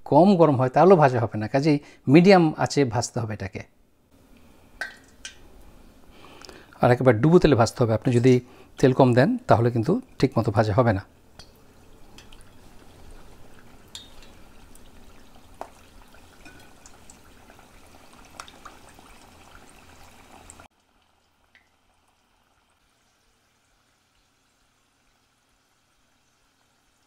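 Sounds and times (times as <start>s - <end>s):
deep-frying sizzle with pops: 4.8s - 5.5s, 11.3s - 27.0s.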